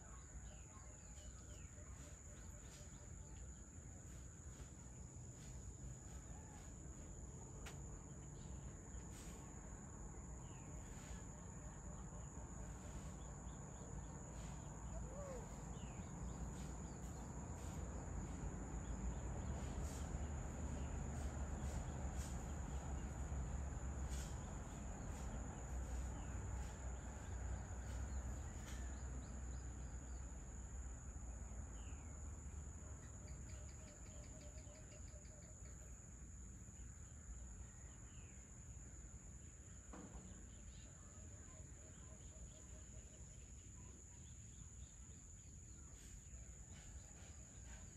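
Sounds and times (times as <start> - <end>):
bird calls and chirps: 0.0 - 4.8, 10.4 - 17.9, 32.9 - 36.0
insect chorus: 0.0 - 47.9.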